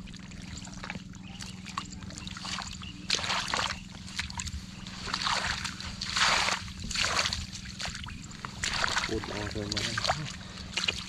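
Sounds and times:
steady low hum: 0.0 - 11.0
hands splashing in water: 5.0 - 11.0.

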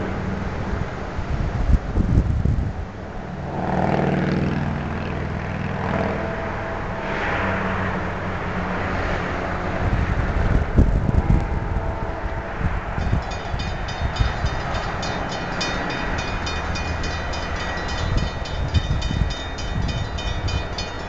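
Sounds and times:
wind buffeting microphone: 0.0 - 6.7, 9.1 - 21.0
cars driving past: 3.0 - 21.0.

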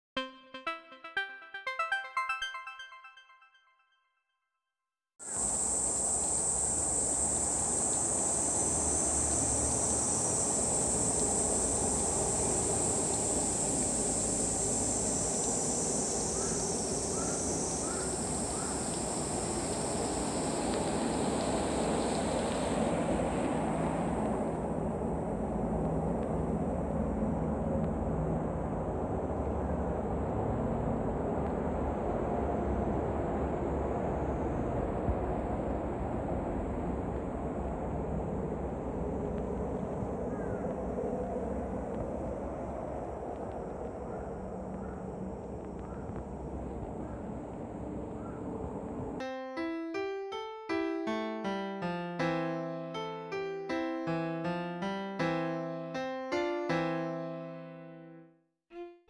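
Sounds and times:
cicada buzzing: 5.2 - 23.4.

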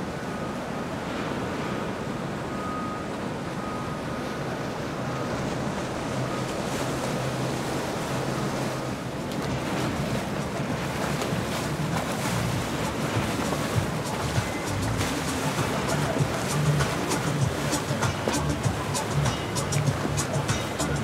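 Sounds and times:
water rushing: 0.0 - 21.0
motorboat engine running: 1.9 - 21.0
wind noise on microphone: 9.4 - 21.0.

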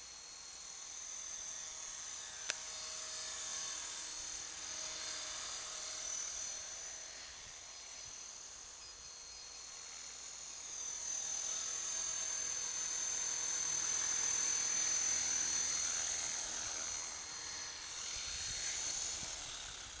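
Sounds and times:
rc helicopter motor whine: 0.0 - 20.0.

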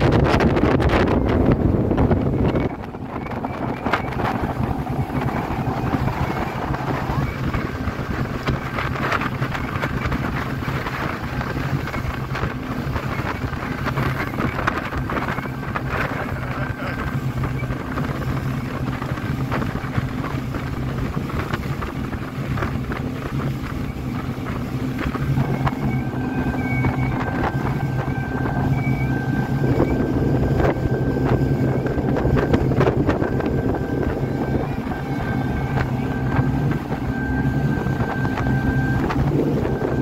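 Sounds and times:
speedboat engine running: 0.0 - 40.0
water rushing against hull: 0.0 - 40.0
wind on microphone: 0.0 - 40.0
thin steady whine: 1.1 - 21.6, 22.3 - 40.0.

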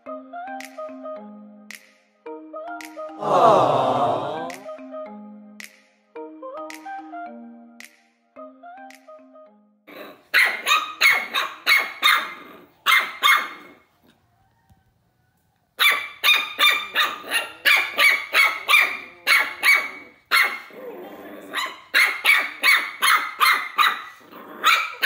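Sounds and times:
puppy yapping: 10.0 - 13.8, 15.8 - 20.8, 21.4 - 25.0.

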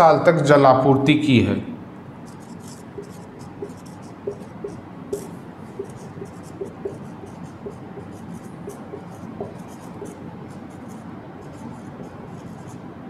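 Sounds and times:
marker squeaking on whiteboard: 2.3 - 12.8.

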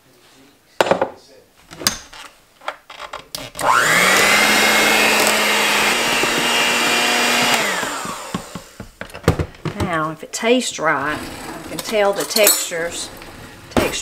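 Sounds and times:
electric hand mixer whining: 3.6 - 9.0.

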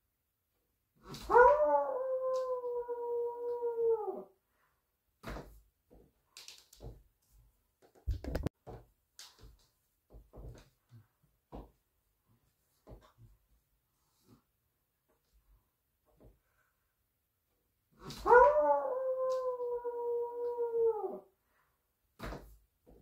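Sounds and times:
short knocks and clicks: 7.8 - 8.5
person howling like a wolf: 18.3 - 21.2.

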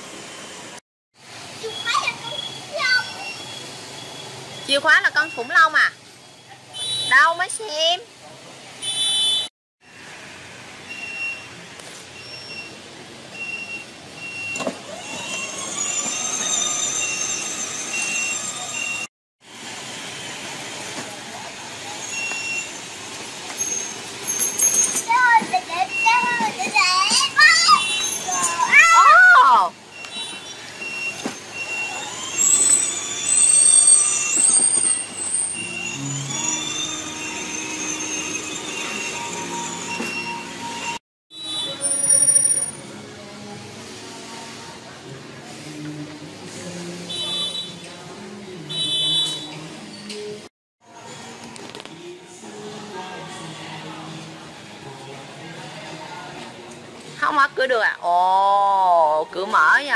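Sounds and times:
electric motors whining: 14.8 - 19.1, 31.5 - 34.7.

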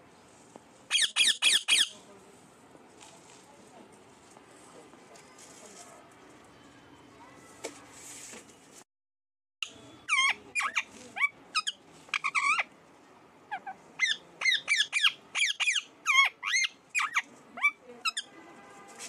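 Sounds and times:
parakeet squawking: 0.9 - 2.0, 9.6 - 12.7, 13.5 - 18.3.

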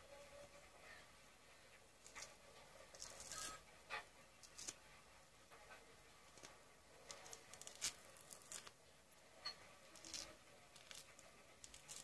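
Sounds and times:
orange peel tearing: 4.4 - 4.8, 6.3 - 8.8, 10.0 - 12.0.

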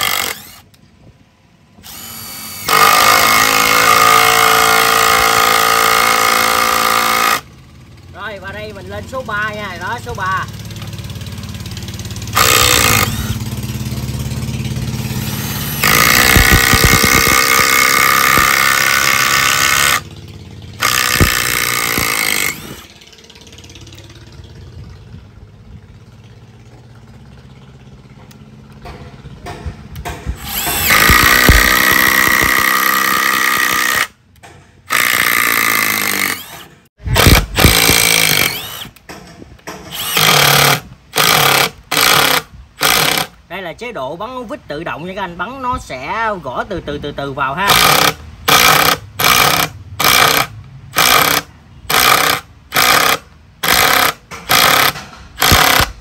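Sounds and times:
impact driver driving screws into wood: 0.0 - 0.7, 1.8 - 7.5, 12.4 - 13.5, 15.0 - 20.0, 20.8 - 22.9, 29.5 - 43.4, 47.7 - 56.0.

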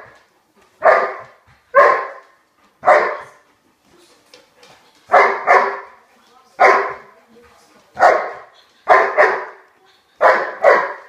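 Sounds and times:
dog barking: 0.8 - 3.4, 5.1 - 6.0, 6.6 - 7.1, 8.0 - 11.0.

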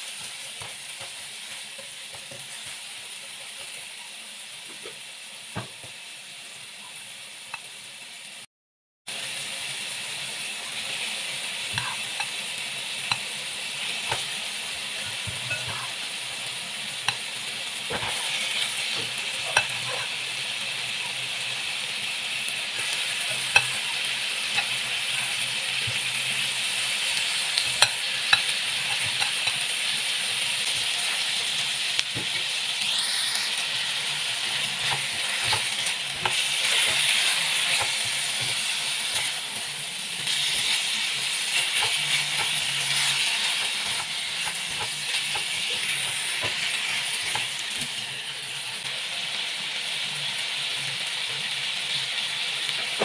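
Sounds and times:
meat sizzling in a wok: 0.0 - 8.5, 9.1 - 53.0
spatula scraping pan: 11.7 - 12.3, 13.9 - 16.1, 17.8 - 20.4, 22.7 - 26.3, 34.2 - 48.0.

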